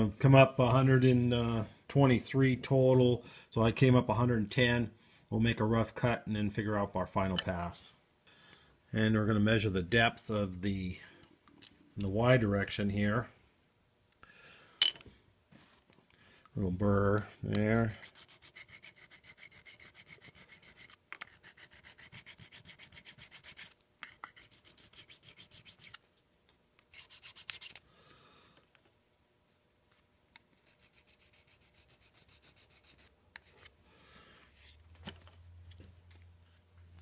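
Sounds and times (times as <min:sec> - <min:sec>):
tool scraping steel edge: 0:17.6 - 0:26.0, 0:26.9 - 0:27.8.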